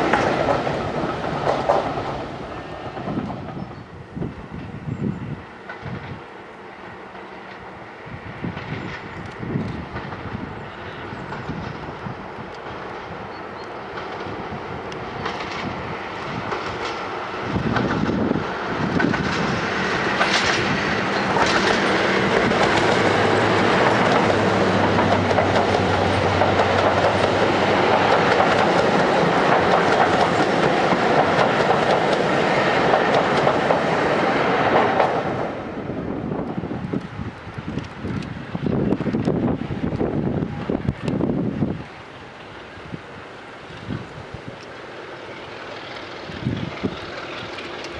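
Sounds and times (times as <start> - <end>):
diesel locomotive passing with coaches: 0.0 - 47.9.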